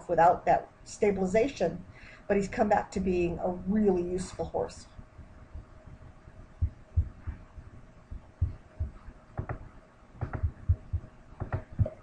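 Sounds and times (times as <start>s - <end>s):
faint steady hum: 0.0s - 12.0s
soft low thumps: 5.0s - 12.0s
sharp clicks: 10.2s - 10.6s, 11.4s - 12.0s.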